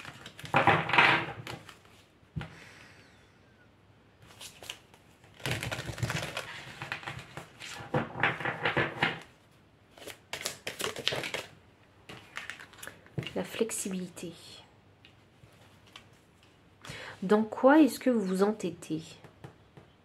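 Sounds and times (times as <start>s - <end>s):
cards being shuffled: 0.0s - 2.1s, 4.2s - 11.5s, 12.1s - 13.6s.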